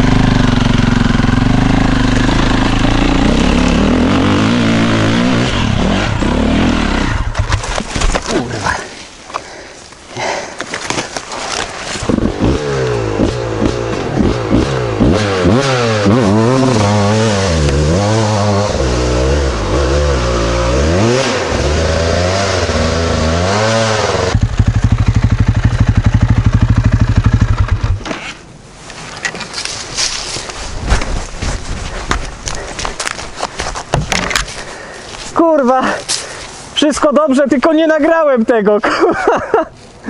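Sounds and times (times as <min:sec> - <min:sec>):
motorbike engine revving: 0:00.0 - 0:07.5, 0:12.0 - 0:28.0.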